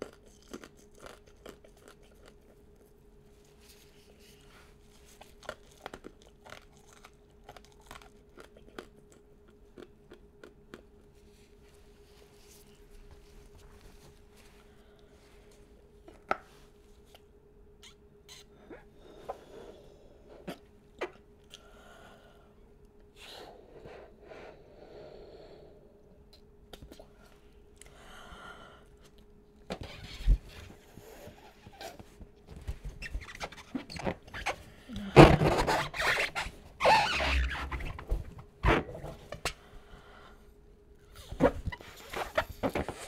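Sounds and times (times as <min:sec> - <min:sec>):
soft breaths: 0:11.2 - 0:17.0, 0:18.4 - 0:20.6, 0:21.5 - 0:26.2, 0:26.9 - 0:29.2, 0:39.2 - 0:43.0
gloved hands squeaking on rubber: 0:29.8 - 0:30.7, 0:32.8 - 0:34.6, 0:35.2 - 0:39.5, 0:41.2 - 0:43.0.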